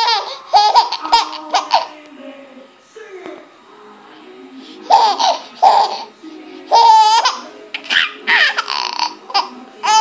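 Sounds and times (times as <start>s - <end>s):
baby laughing: 0.0s - 2.0s, 4.8s - 6.1s, 6.7s - 10.0s.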